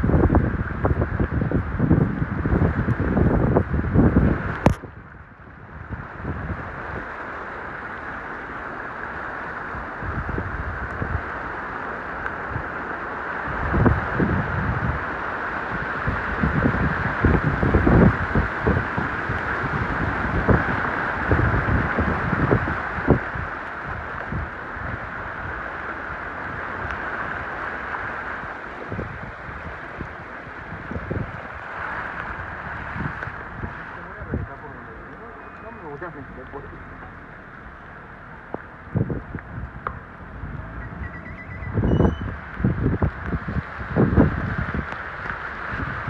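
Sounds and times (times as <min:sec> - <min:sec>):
vehicle driving through floodwater: 0:00.0 - 0:46.0
wind buffeting microphone: 0:00.0 - 0:46.0
tyres splashing through water: 0:06.1 - 0:41.1.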